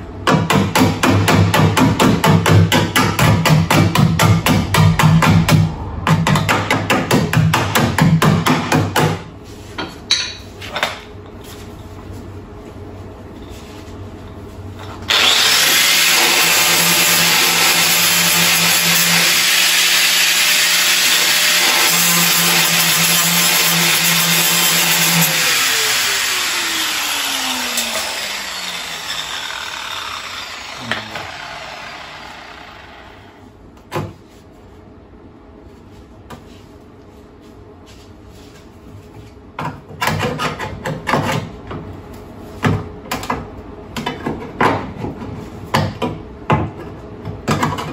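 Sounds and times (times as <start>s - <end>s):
angle grinder grinding steel: 15.1s - 33.4s.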